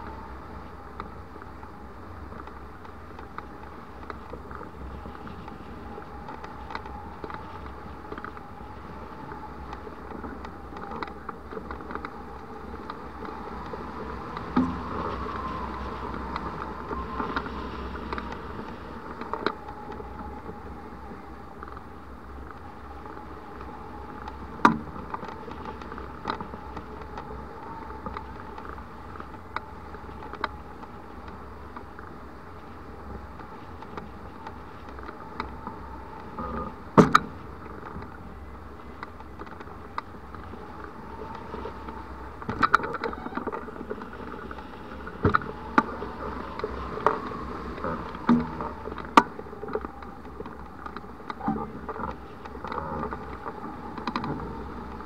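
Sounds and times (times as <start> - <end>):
wind rushing past camera: 0.0 - 55.0.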